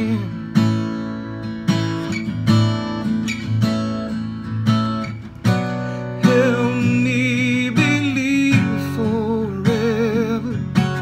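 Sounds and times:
acoustic guitar strumming: 0.0s - 11.0s
person singing: 6.1s - 11.0s.

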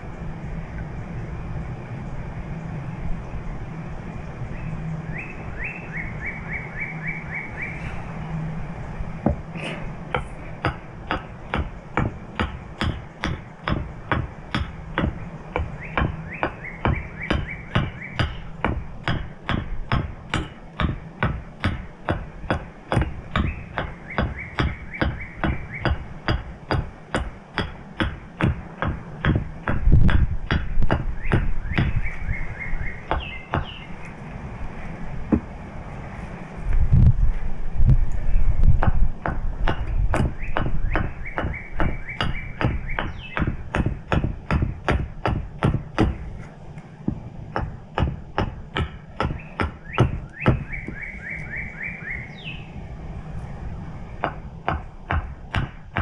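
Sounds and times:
bird trilling: 4.5s - 7.8s, 14.3s - 18.7s, 23.3s - 26.4s, 30.9s - 34.0s, 40.2s - 43.6s, 49.0s - 52.8s
mallet striking carving tool: 10.1s - 32.0s, 38.8s - 46.2s, 47.5s - 51.0s, 54.2s - 56.0s.

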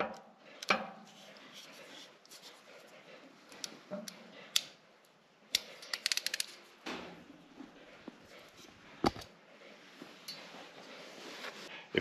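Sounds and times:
ratcheting crimper clicking: 5.5s - 6.6s.

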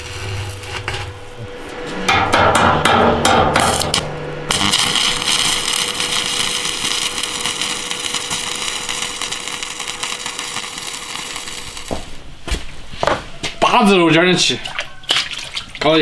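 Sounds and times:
welding arc crackling: 0.0s - 1.5s, 3.5s - 12.3s.

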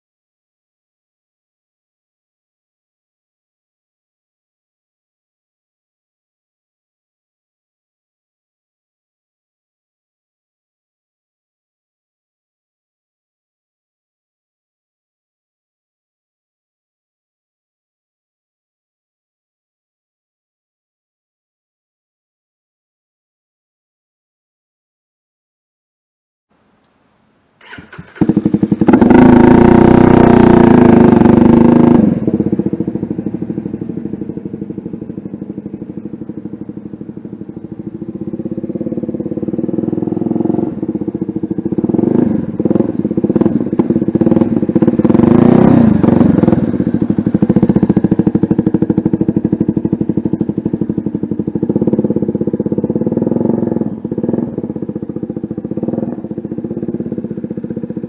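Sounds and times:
motorcycle engine revving: 27.6s - 58.0s.

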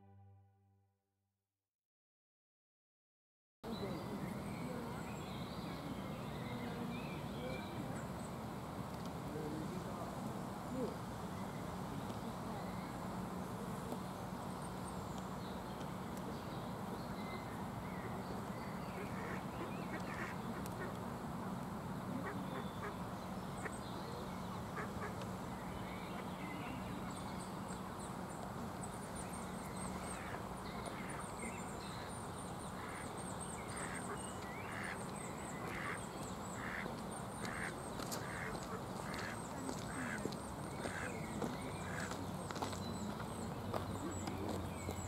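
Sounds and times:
steady background noise: 3.7s - 45.0s
duck quacking: 19.0s - 20.9s, 22.2s - 23.0s, 24.7s - 25.2s, 33.8s - 35.0s, 35.6s - 36.0s, 36.6s - 40.2s, 40.8s - 41.1s.

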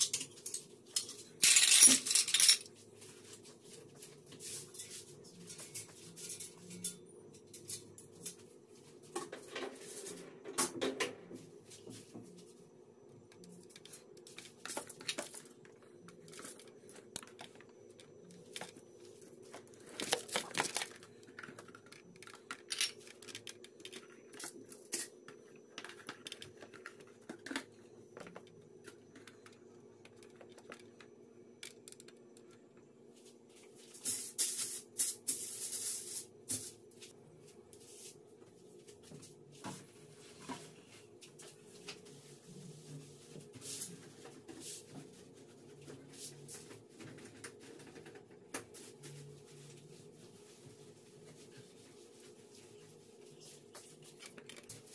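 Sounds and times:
faint steady hum: 0.0s - 54.9s
aluminium foil crinkling: 19.8s - 23.0s.

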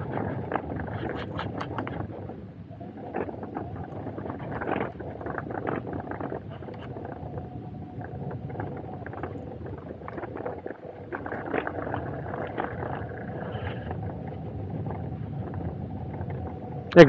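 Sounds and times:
rumble and rattle over rough ground: 0.0s - 17.0s
wind on microphone: 0.0s - 17.0s.

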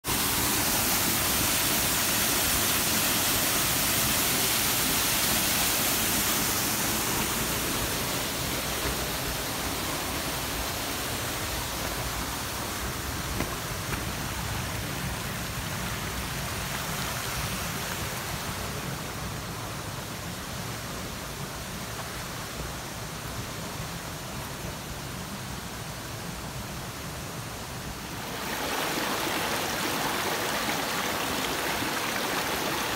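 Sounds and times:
stream splashing over stones: 0.1s - 19.5s, 28.0s - 32.9s.

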